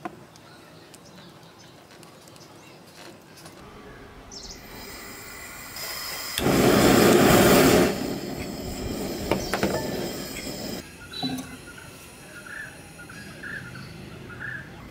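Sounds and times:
gas hissing: 0:04.2 - 0:14.4
gas burner whoosh and burning: 0:04.3 - 0:14.0.

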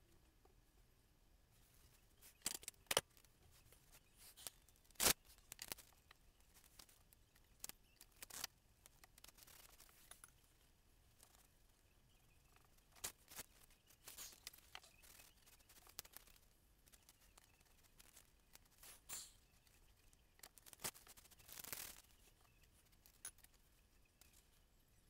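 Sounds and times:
faint rustle: 0:01.5 - 0:25.0
masking tape peeling crackles: 0:04.2 - 0:06.0, 0:06.6 - 0:10.0, 0:20.4 - 0:22.2.

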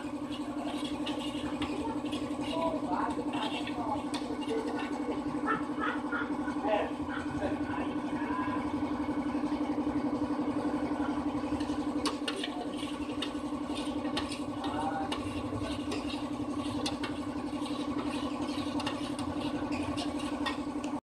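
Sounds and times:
stick stirring paint in metal can: 0:00.0 - 0:08.2, 0:09.4 - 0:21.0
machine hum: 0:00.0 - 0:21.0.

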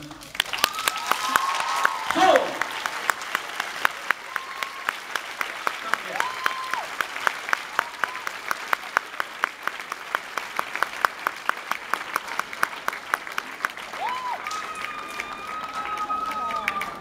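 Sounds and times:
audience applauding: 0:00.0 - 0:17.0
close hand claps: 0:00.2 - 0:17.0.

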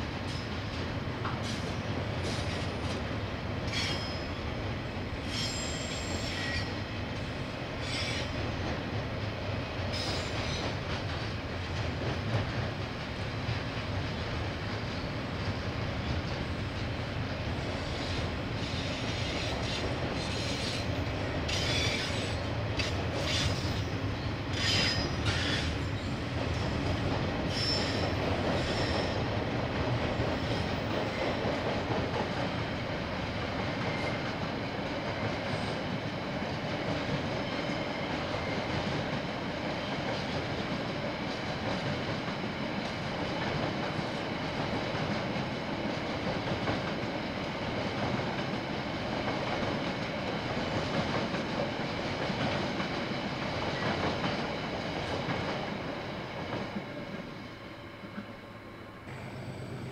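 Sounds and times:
freight train rumbling on rails: 0:00.0 - 0:59.9
train wheel screeches: 0:01.4 - 0:02.9, 0:03.7 - 0:04.4, 0:05.2 - 0:06.8, 0:07.8 - 0:08.4, 0:09.9 - 0:10.8, 0:17.7 - 0:23.9, 0:24.5 - 0:26.1, 0:27.5 - 0:29.2.

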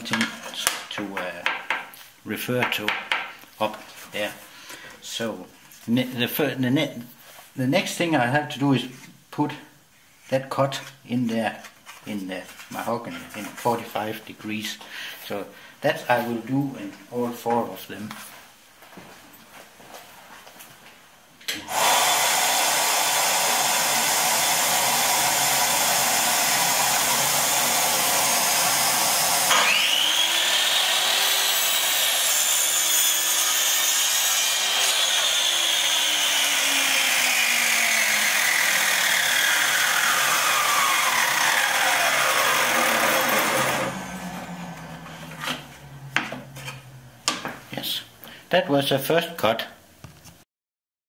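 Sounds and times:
saw blade cutting wood: 0:21.6 - 0:47.6
miter saw motor whining: 0:21.7 - 0:47.1.

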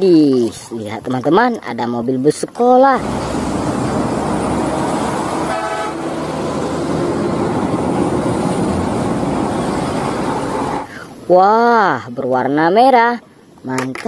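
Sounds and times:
buses driving past: 0:03.0 - 0:11.3
bus horn toot: 0:05.0 - 0:08.2.

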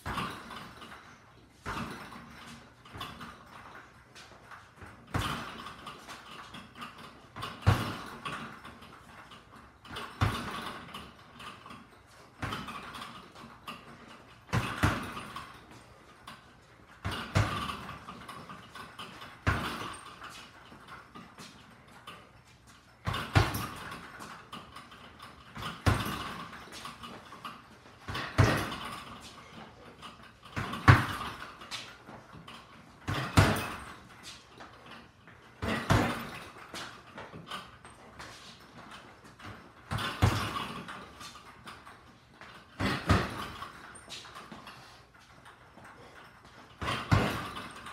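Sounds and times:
gloved punches on punching bag: 0:04.8 - 0:05.8, 0:07.4 - 0:08.5, 0:09.9 - 0:10.9, 0:12.4 - 0:13.2, 0:14.5 - 0:15.5, 0:17.0 - 0:18.1, 0:19.4 - 0:20.1, 0:23.0 - 0:24.0, 0:25.5 - 0:26.9, 0:28.1 - 0:29.2, 0:30.6 - 0:31.6, 0:33.0 - 0:34.0, 0:35.6 - 0:36.8, 0:39.9 - 0:41.0, 0:42.8 - 0:43.8, 0:46.8 - 0:47.8.

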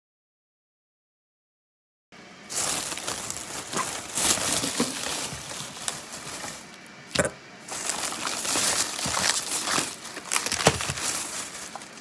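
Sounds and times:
plastic bags rustling: 0:02.5 - 0:12.0.

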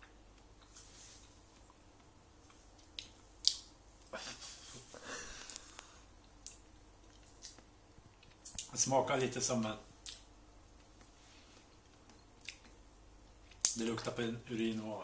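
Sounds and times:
person chewing with wet mouth clicks: 0:01.6 - 0:03.7, 0:10.8 - 0:12.8.

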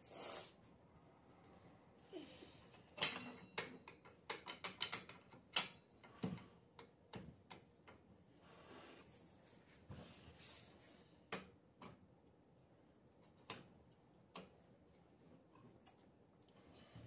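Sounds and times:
hand tools clicking and knocking: 0:02.7 - 0:08.0.

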